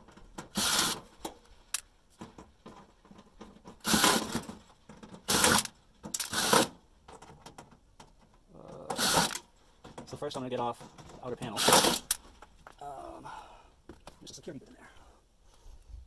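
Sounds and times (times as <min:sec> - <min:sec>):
cordless drill bursts: 0:00.6 - 0:01.0, 0:03.8 - 0:04.3, 0:05.3 - 0:06.7, 0:09.0 - 0:09.4, 0:11.6 - 0:12.1.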